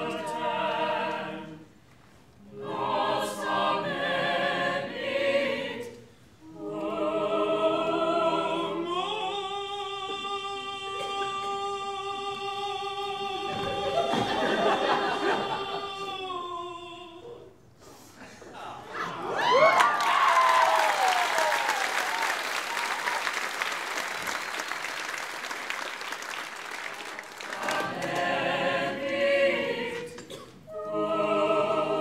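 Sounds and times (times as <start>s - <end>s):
cast singing in harmony: 0.0s - 1.7s, 2.4s - 17.3s, 27.4s - 32.0s.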